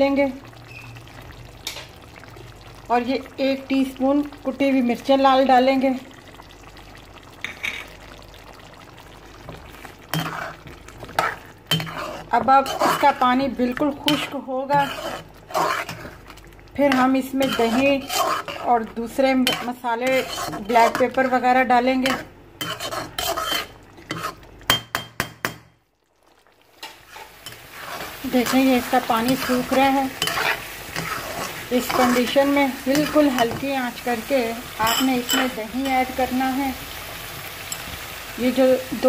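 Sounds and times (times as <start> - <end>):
pot simmering bubbling: 0.0 - 39.0
metal spoon stirring and scraping: 10.1 - 13.3, 14.0 - 16.3, 16.9 - 21.3, 22.0 - 24.8, 26.8 - 36.6.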